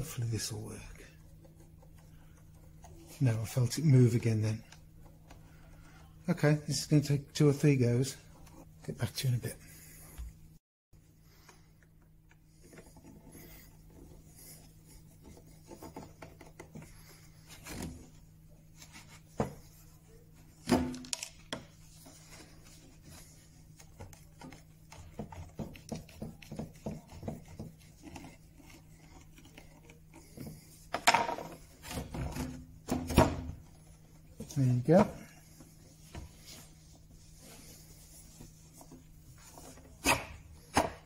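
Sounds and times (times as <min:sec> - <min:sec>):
wood scraping on wood: 0:21.6 - 0:32.7.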